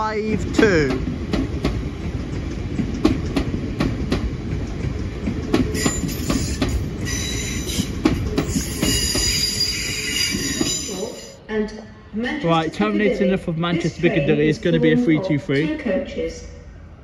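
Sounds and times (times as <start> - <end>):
train wheels clicking over rail joints: 0.4 - 11.0
high-pitched wheel squeal: 5.8 - 11.4.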